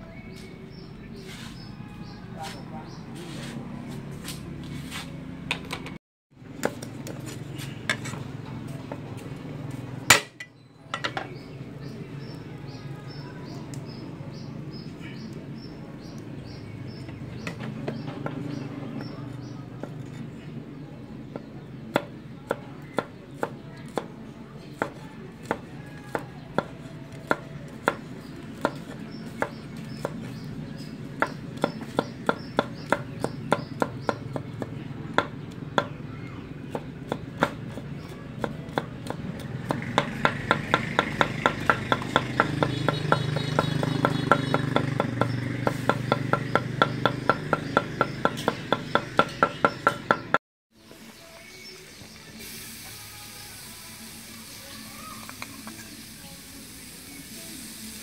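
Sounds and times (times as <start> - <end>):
cleaver chopping on wooden board: 24.8 - 28.0, 31.2 - 36.0, 36.6 - 50.4.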